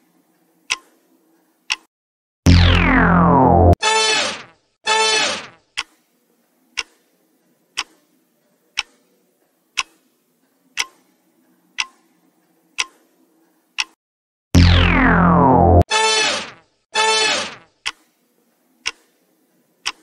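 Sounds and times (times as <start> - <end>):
clock ticking: 0.7 - 0.9, 1.7 - 1.9, 6.8 - 7.0, 7.8 - 8.0, 8.8 - 9.0, 9.8 - 10.1, 10.7 - 11.1, 11.8 - 12.0, 12.8 - 13.0, 13.8 - 14.0, 17.8 - 18.2, 18.8 - 19.2, 19.8 - 20.0
falling pitch sound effect: 2.5 - 4.2, 14.6 - 16.5
short loud electronic tone: 2.5 - 5.4, 14.6 - 17.5.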